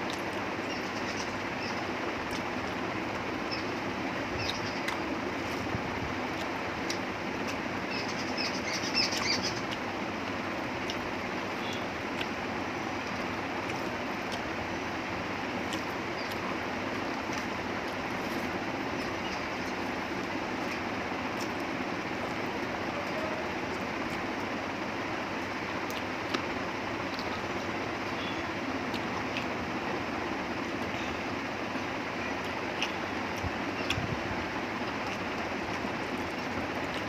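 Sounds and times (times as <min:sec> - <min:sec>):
rice mixing and chewing clicks: 0:00.0 - 0:37.0
high chirping: 0:07.9 - 0:09.8.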